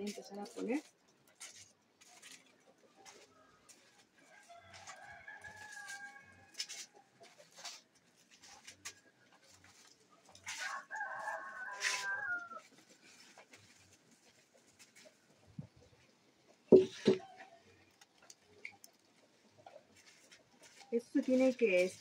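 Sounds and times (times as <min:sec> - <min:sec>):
rooster crowing: 0:03.0 - 0:06.8, 0:10.5 - 0:12.7.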